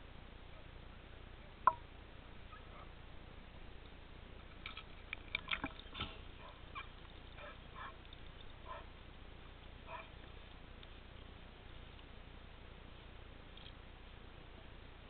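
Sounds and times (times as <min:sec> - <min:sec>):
water splashing and dripping: 0:04.5 - 0:08.8.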